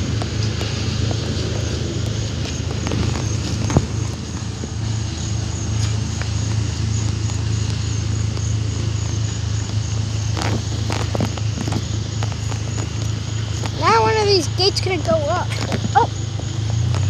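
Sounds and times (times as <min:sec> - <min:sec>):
freight train rumbling: 0:00.0 - 0:17.0
wheels clattering over rail joints: 0:00.0 - 0:17.0.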